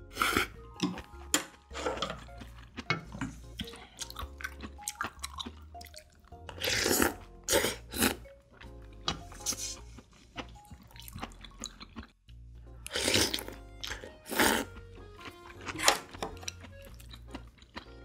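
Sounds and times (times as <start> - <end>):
slurping noodles: 0.0 - 0.7, 6.5 - 8.2, 9.3 - 10.0, 12.9 - 14.8
soft background music: 0.0 - 18.0
chewing: 0.1 - 18.0.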